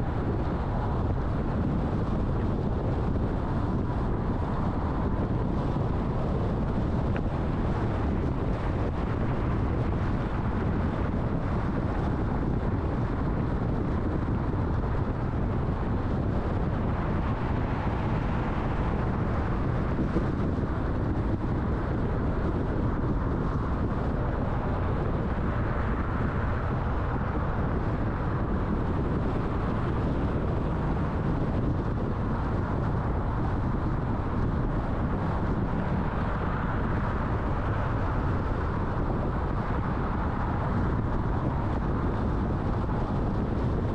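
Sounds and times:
car road noise: 0.0 - 43.9.

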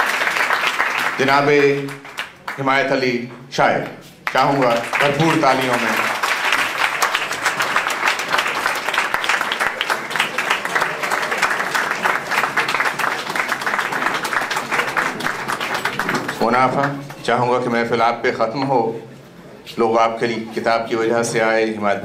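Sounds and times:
audience applauding: 0.0 - 2.9, 4.2 - 17.3.

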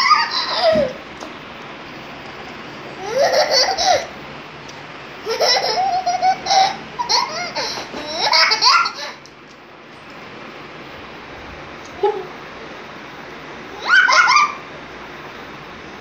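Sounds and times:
baby laughing: 0.0 - 1.0, 3.0 - 4.2, 5.2 - 9.3, 13.8 - 14.6.

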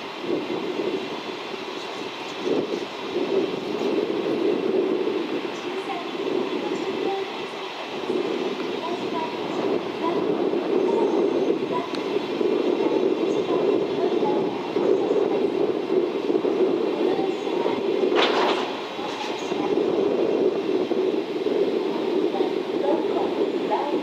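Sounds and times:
wagon wheels rolling on rail: 17.0 - 20.3.

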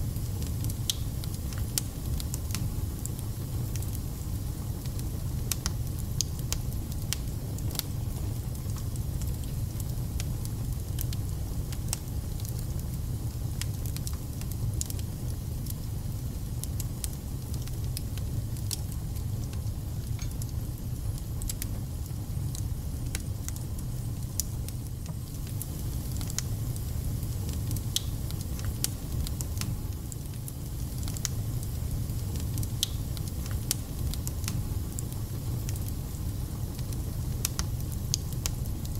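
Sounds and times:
wood fire crackling: 0.0 - 38.9.

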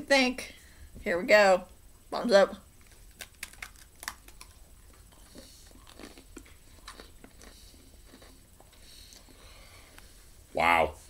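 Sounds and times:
people chewing cookies: 2.7 - 10.3.

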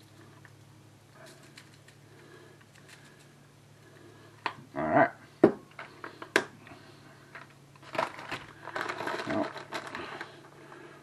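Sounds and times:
small clicks and rustling: 1.2 - 2.0, 2.6 - 3.4, 7.3 - 10.6.

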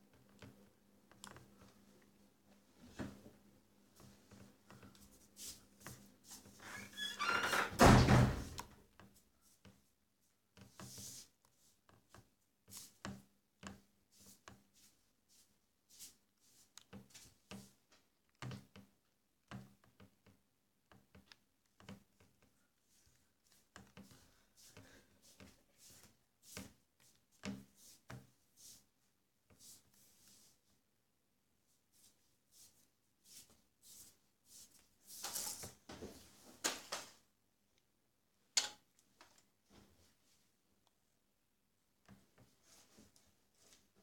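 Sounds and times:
faint small clicks and knocks: 38.6 - 39.5.

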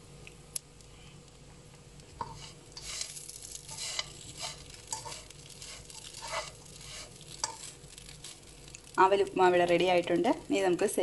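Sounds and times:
spatula scraping a pan: 2.2 - 7.8.

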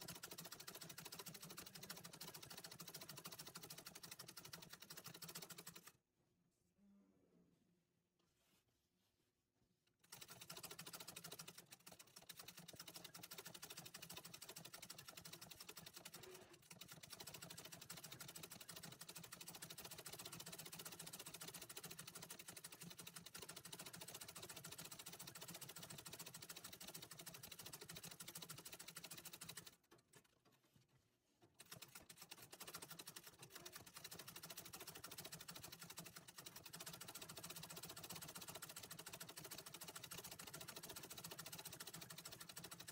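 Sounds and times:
treadle sewing machine running: 0.0 - 5.9, 10.0 - 29.8, 31.6 - 42.9.

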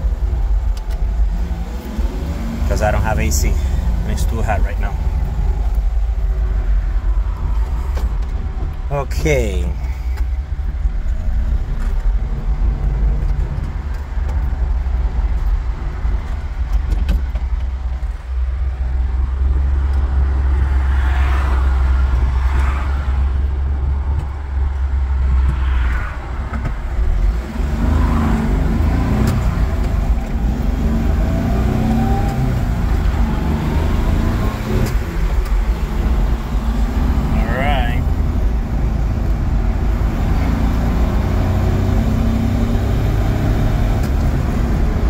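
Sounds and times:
road noise: 0.0 - 45.0.

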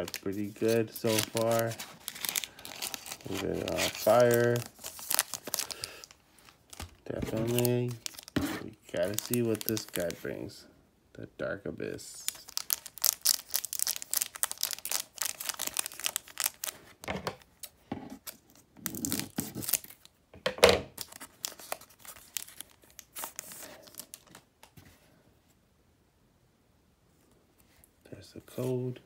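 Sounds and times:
foil wrapper crinkling: 0.0 - 10.3, 12.2 - 20.1, 21.0 - 24.5.

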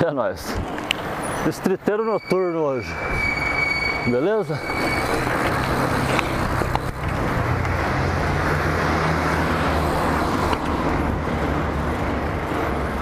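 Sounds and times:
road traffic noise: 0.0 - 13.0
bike tyres rolling on pavement: 3.1 - 13.0.

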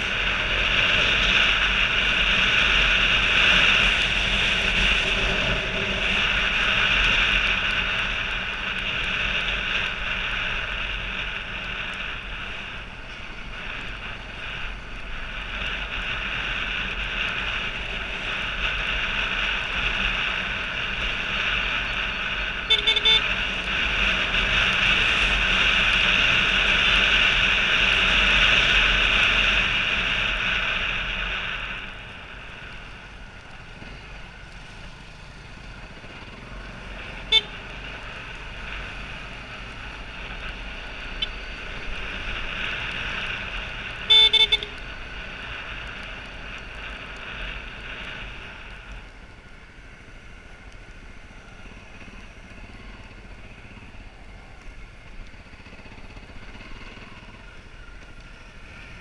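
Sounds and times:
motorcycle engine: 0.0 - 59.0
horn toot: 22.7 - 23.2, 44.1 - 44.8.

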